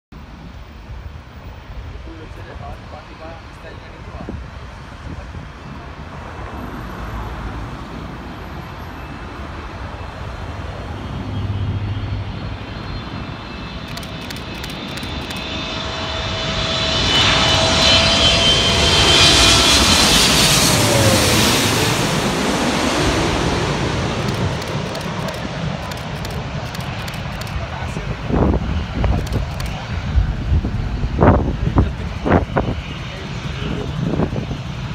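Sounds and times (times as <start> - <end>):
jet airliner passing overhead: 0.2 - 34.9
whining tone dropping in pitch: 11.0 - 26.6.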